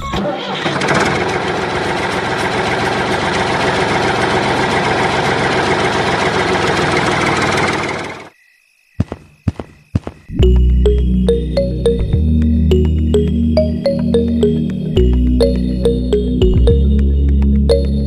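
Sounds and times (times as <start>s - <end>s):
small tractor engine running: 0.1s - 8.3s
music: 10.3s - 18.0s.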